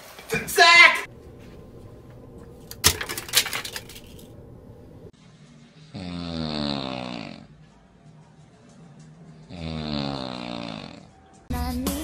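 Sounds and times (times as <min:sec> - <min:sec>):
person snoring: 0:05.9 - 0:07.5, 0:09.5 - 0:11.1.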